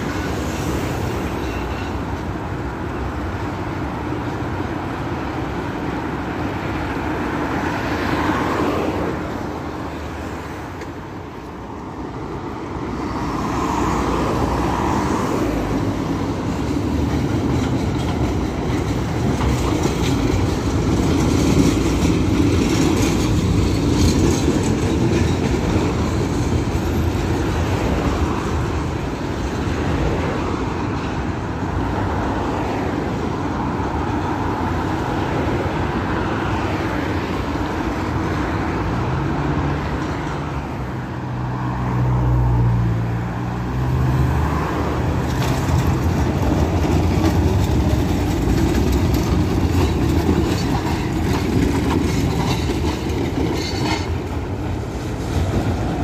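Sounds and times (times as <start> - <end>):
tram rumbling on rails: 0.0 - 56.0
wheel clatter: 45.2 - 55.8.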